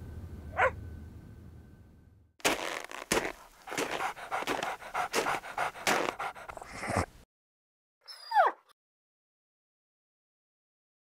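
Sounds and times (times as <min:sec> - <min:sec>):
dog panting: 0:02.5 - 0:07.1.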